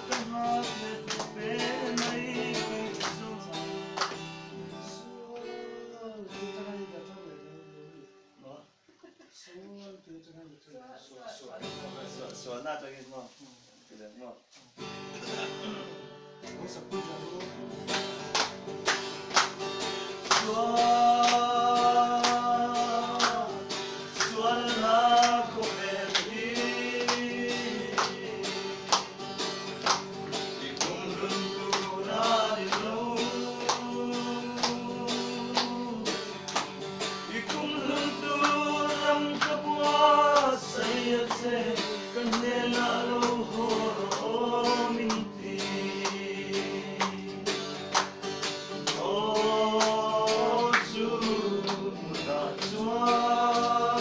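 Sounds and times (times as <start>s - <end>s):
man singing: 0.0s - 4.0s, 4.6s - 8.4s, 20.2s - 28.9s, 30.5s - 36.5s, 37.2s - 47.7s, 48.8s - 54.0s
hands clapping: 0.0s - 4.7s, 16.4s - 54.0s
acoustic guitar strumming: 0.0s - 8.4s, 14.8s - 54.0s.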